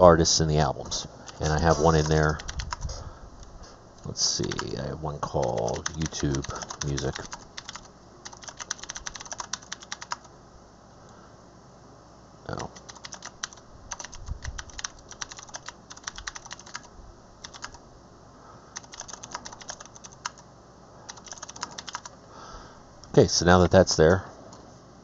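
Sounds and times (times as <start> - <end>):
keyboard typing: 1.2 - 2.9, 4.4 - 10.3, 12.5 - 17.8, 18.8 - 20.4, 21.1 - 22.2.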